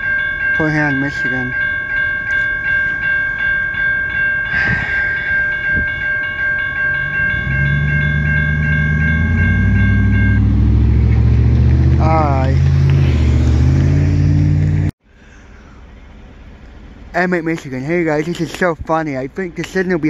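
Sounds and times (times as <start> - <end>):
crossing bell ringing: 0.0 - 12.6
truck engine pulling away: 6.9 - 14.9.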